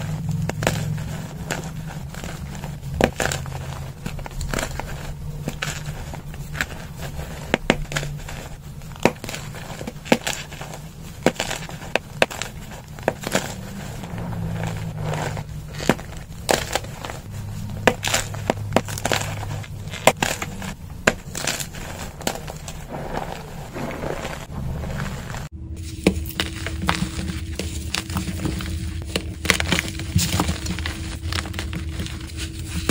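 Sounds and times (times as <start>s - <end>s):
chalk crunching in hands: 0.0s - 32.9s
low steady hum: 0.0s - 32.9s
powdery crumbling: 0.0s - 32.9s.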